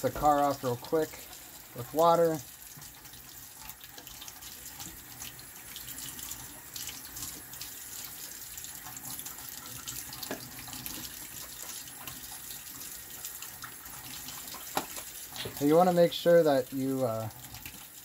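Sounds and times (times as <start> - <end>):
faucet running into steel sink: 0.0 - 18.0
water splashing off plastic: 14.4 - 15.7.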